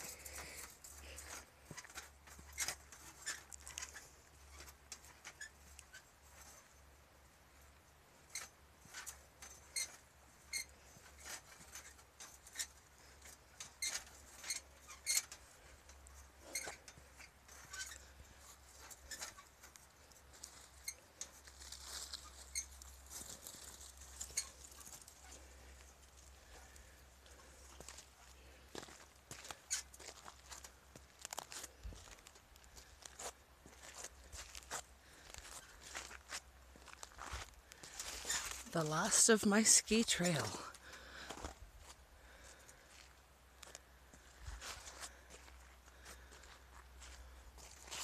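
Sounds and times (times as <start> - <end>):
footsteps crunching on gravel: 26.2 - 39.1, 40.4 - 48.0.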